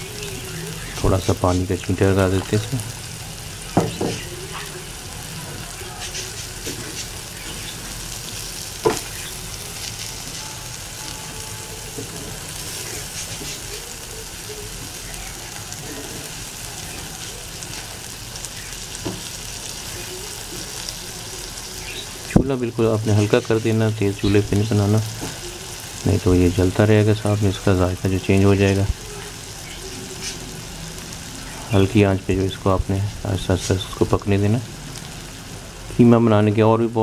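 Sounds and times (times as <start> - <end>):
meat sizzling on a griddle: 0.0 - 37.0
wooden spatula scraping: 12.0 - 13.7.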